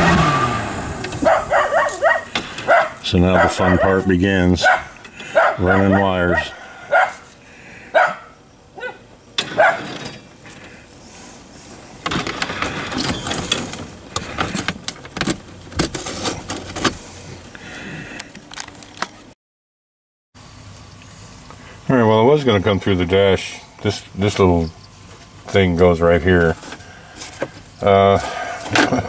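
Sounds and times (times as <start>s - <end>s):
dog barking: 1.2s - 7.2s, 7.9s - 9.9s
rustling and clattering: 9.4s - 10.8s, 11.6s - 17.5s.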